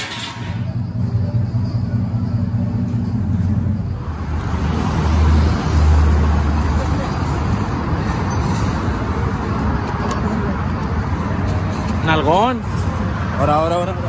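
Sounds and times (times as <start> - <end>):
truck engine idling: 0.0 - 13.1
outdoor noise: 0.0 - 14.0.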